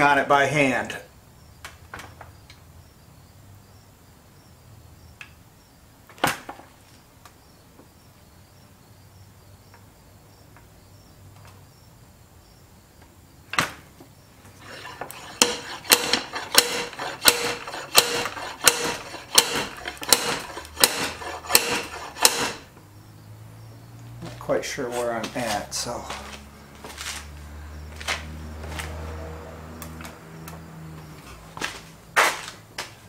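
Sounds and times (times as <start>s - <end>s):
slide hammer metal blows: 14.6s - 22.7s.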